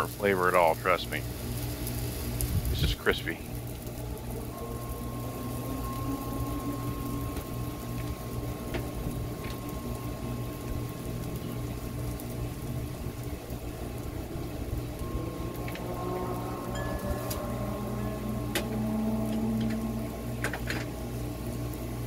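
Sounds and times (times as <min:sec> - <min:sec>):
bacon fat sizzling: 0:00.0 - 0:22.0
low steady hum: 0:00.0 - 0:22.0.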